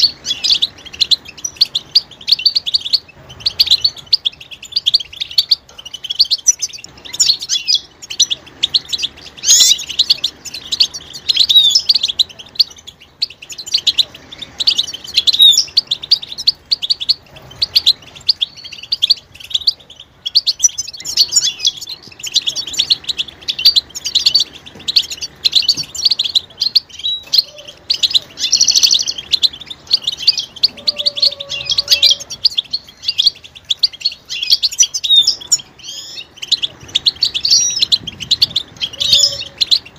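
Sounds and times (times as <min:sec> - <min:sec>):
goldfinch twittering: 0:00.0 - 0:39.9.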